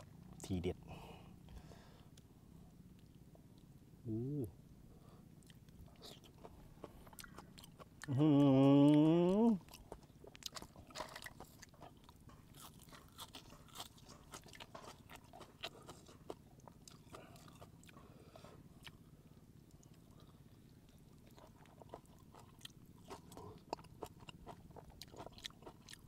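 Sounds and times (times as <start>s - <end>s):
chewing: 2.9s - 3.8s, 5.1s - 26.0s.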